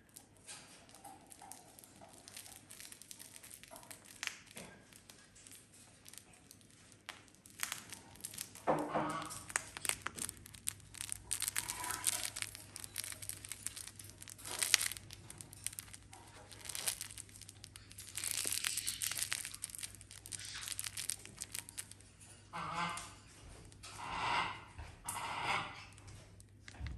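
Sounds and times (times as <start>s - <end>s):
plush toy crinkling and tearing: 0.8s - 22.3s.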